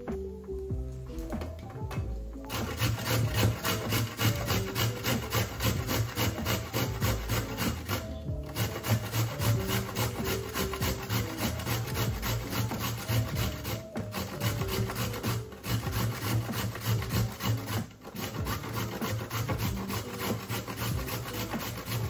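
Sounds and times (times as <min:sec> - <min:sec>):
carrot scraping on metal grater: 0:02.5 - 0:22.0.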